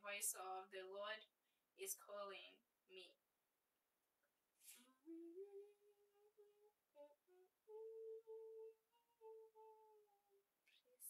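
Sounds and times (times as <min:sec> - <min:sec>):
person humming a hymn melody: 0:05.0 - 0:11.0.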